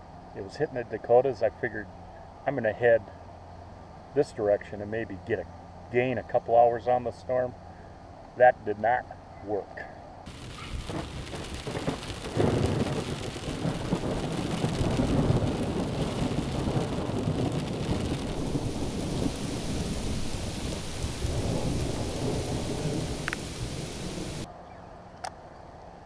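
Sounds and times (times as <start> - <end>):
rain pouring down: 10.3 - 24.5
thunder rumbling: 10.3 - 24.5.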